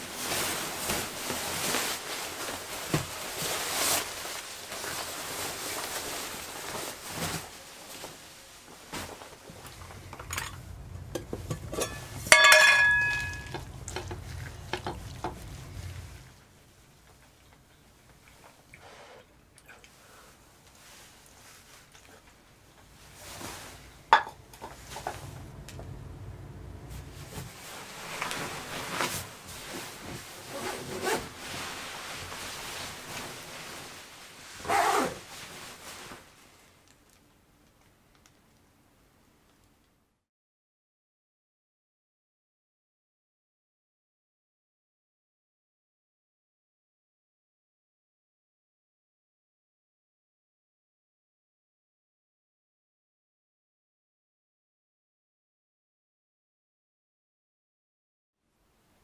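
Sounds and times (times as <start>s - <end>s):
gear rustling and scraping: 0.2s - 16.4s, 22.8s - 36.2s
low rumble: 9.6s - 12.3s, 13.2s - 16.5s, 23.0s - 28.8s
metal cookware clinking: 10.1s - 15.4s, 24.1s - 24.4s
ringing metal clang: 11.7s - 13.6s.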